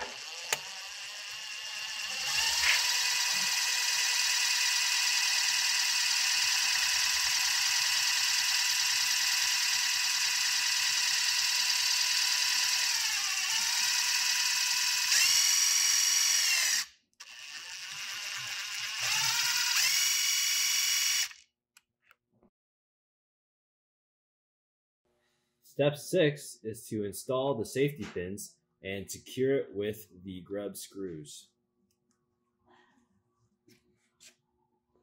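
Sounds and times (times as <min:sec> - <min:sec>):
cordless driver motor whine: 0:00.0 - 0:21.4.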